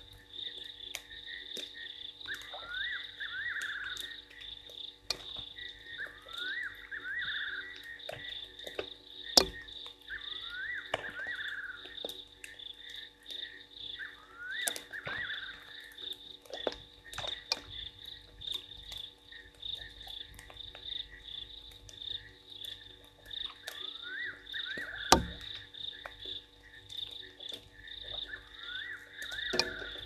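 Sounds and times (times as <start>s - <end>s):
frog clicks: 0.0s - 30.0s
frogs trilling chorus: 0.0s - 30.0s
rising frog call: 2.2s - 4.4s, 5.7s - 8.3s, 9.4s - 12.1s, 13.4s - 16.2s, 23.5s - 26.0s, 28.0s - 30.0s.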